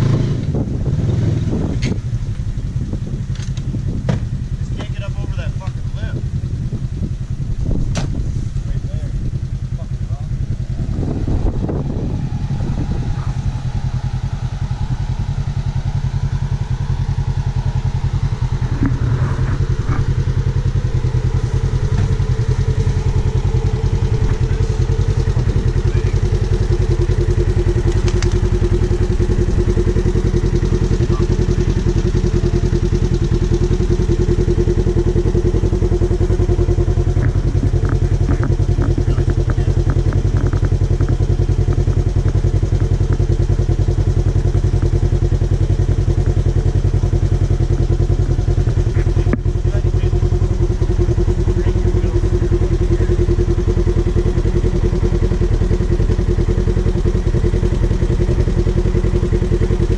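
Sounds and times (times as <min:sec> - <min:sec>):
vehicle engine idling: 0:00.0 - 0:59.9
winch whine: 0:10.5 - 0:41.2.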